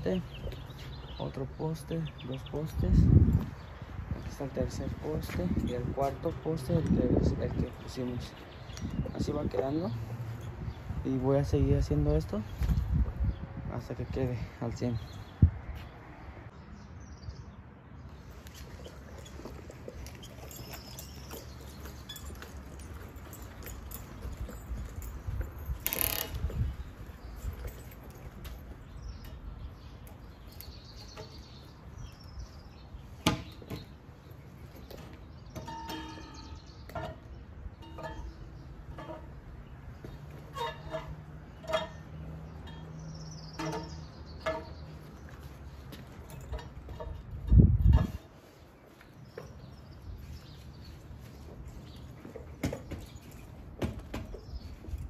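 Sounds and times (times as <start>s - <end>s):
wood knocking against metal: 33.2s - 33.9s, 35.0s - 39.4s.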